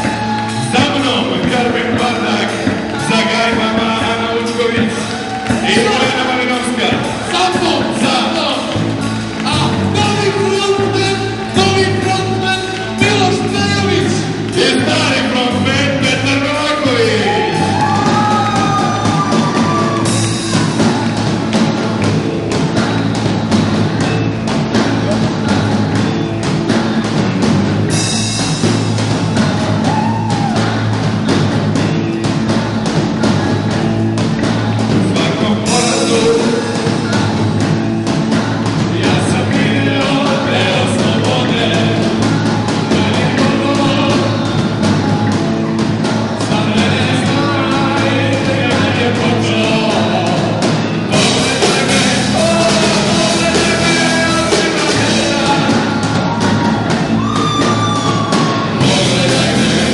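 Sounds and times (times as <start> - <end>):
live rock band playing: 0.0 - 59.9.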